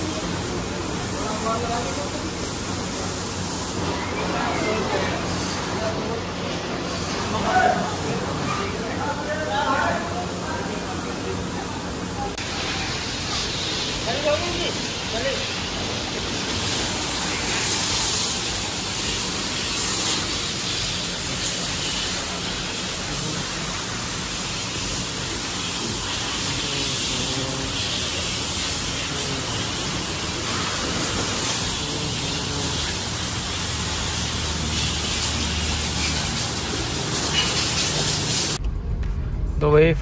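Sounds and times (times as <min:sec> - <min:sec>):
pressure washer spraying water: 0:00.0 - 0:38.6
water spattering off car: 0:12.4 - 0:38.6.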